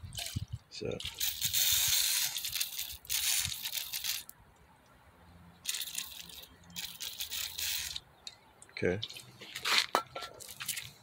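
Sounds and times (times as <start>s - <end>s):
aerosol can spraying: 1.2s - 4.3s.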